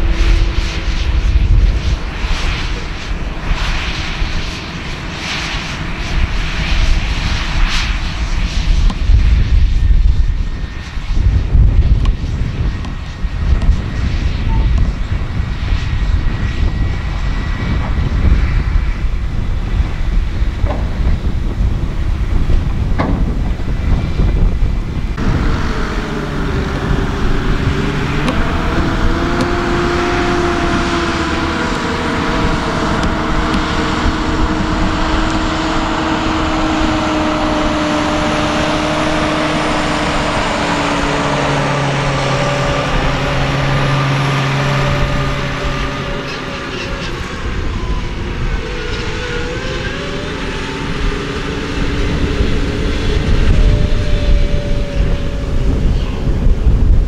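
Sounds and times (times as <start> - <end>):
engine drone: 0.0 - 57.0
tractor engine rumble: 18.8 - 57.0.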